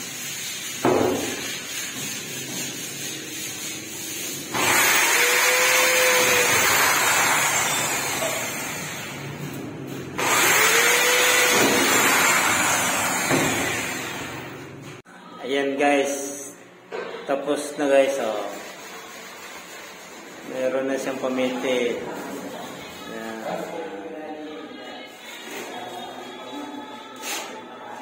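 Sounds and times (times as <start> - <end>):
electric drill boring into steel: 4.5 - 9.1, 10.2 - 14.3.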